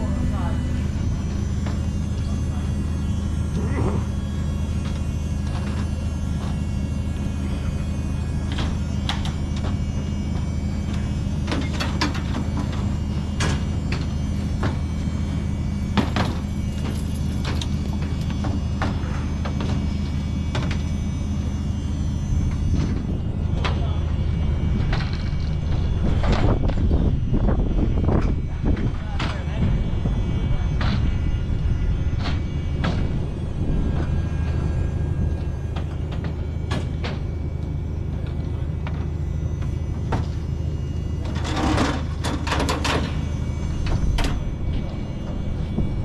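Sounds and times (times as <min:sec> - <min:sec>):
low machine hum: 0:00.0 - 0:46.0
knocks and clanks: 0:08.5 - 0:15.0, 0:15.9 - 0:20.9, 0:24.8 - 0:27.0, 0:30.7 - 0:31.2, 0:32.2 - 0:33.2, 0:35.4 - 0:40.5.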